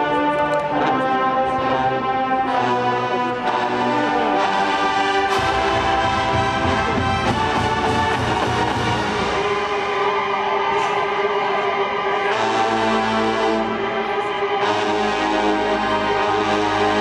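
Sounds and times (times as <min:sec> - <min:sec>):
marching band brass fanfare: 0:00.0 - 0:17.0.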